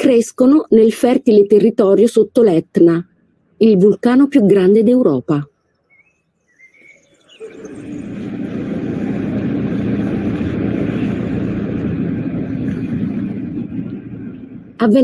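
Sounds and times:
boat engine droning: 0:06.7 - 0:15.0.

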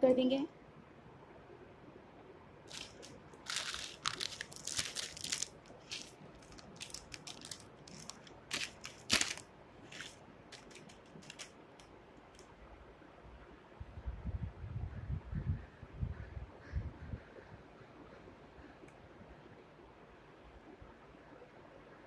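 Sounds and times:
plastic packet crinkling: 0:02.7 - 0:11.6.

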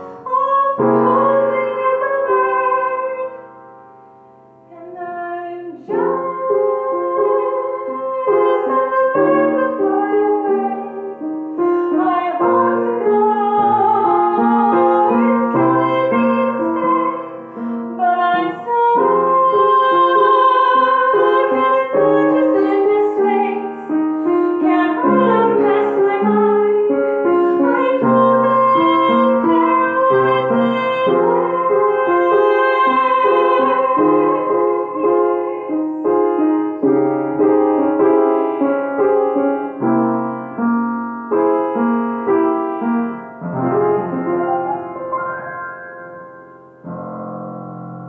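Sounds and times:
woman singing: 0:00.0 - 0:03.5, 0:04.7 - 0:36.6
upright piano chords: 0:00.0 - 0:48.0.

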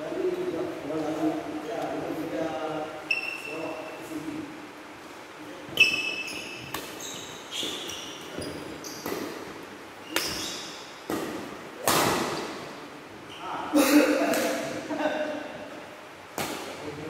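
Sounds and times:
shoes squeaking on court: 0:03.1 - 0:04.0, 0:05.7 - 0:11.1
rackets hitting shuttlecock: 0:05.8 - 0:12.7, 0:16.3 - 0:16.8.

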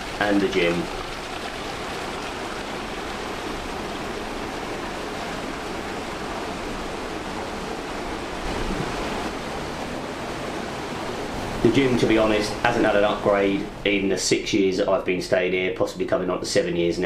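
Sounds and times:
water splashing into pool: 0:00.0 - 0:07.4, 0:08.3 - 0:10.0.

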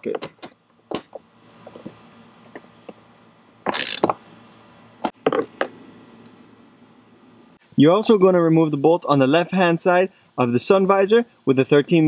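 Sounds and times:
hand ratchet clicking: 0:03.7 - 0:04.1.

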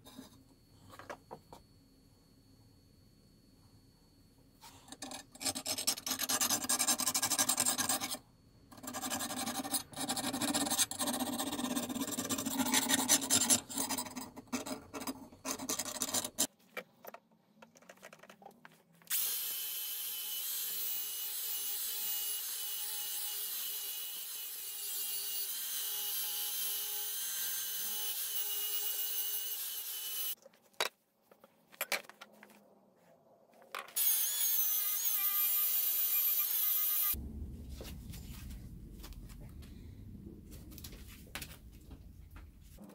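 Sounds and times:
tool scraping steel blade: 0:04.6 - 0:16.5.

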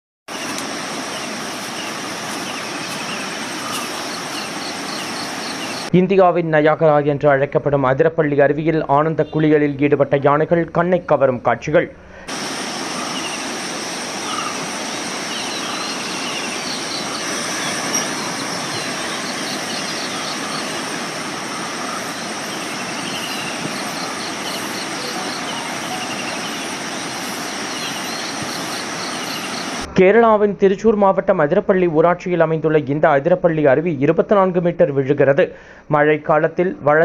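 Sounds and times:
river water rushing over rocks: 0:00.3 - 0:05.9, 0:12.3 - 0:29.9
faint high-pitched chirping: 0:14.2 - 0:29.9.

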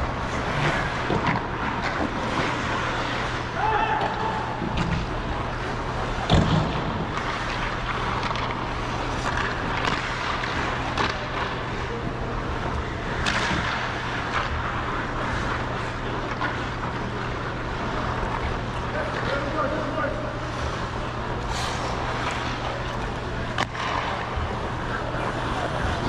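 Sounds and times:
ice skates scraping on ice: 0:00.0 - 0:03.7.

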